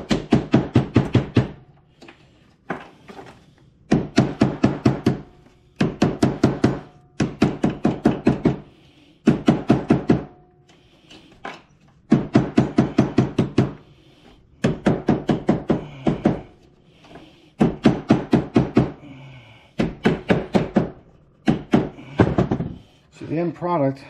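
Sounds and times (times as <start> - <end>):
hammer beating cable on wooden bench: 0.0 - 1.6, 3.8 - 10.4, 12.0 - 13.8, 14.6 - 16.6, 17.6 - 19.1, 19.8 - 22.8.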